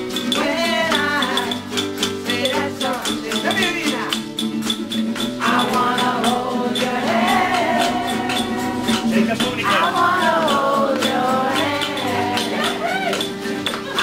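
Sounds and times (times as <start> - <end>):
person singing: 0.0 - 4.1, 5.4 - 14.0
acoustic guitar: 0.0 - 14.0
shakers and percussion: 0.0 - 14.0.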